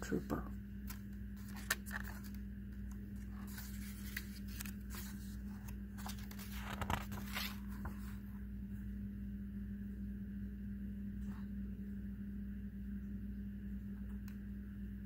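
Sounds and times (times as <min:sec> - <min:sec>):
steady low hum: 0:00.0 - 0:15.0
book pages rustling: 0:00.8 - 0:08.4.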